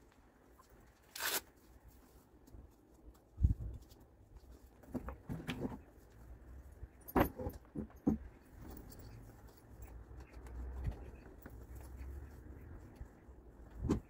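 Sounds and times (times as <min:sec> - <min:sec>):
harness buckles clinking: 0:07.0 - 0:12.0.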